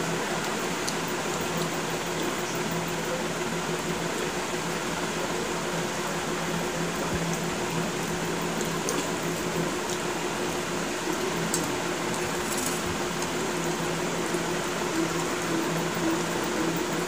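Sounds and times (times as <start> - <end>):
fan humming: 0.0 - 17.0.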